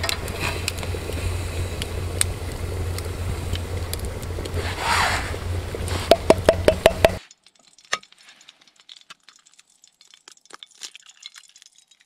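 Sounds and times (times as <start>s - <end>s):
low rumble: 0.0s - 7.2s
campfire crackling and popping: 0.0s - 12.0s
rush of noise: 0.4s - 7.2s.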